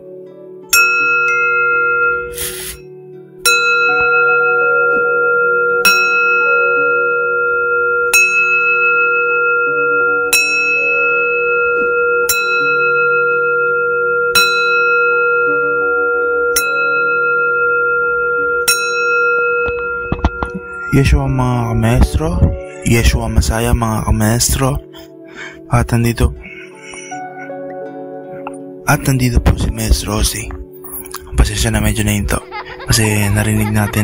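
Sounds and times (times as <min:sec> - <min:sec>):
singing bowl ringing: 0:00.7 - 0:24.8.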